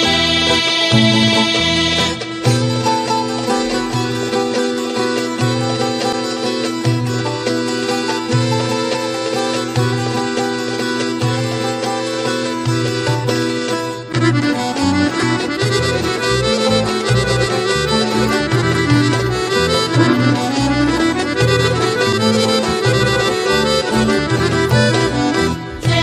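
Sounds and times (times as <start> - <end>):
accordion folk tune: 0.0 - 26.0
bass line: 18.7 - 21.6.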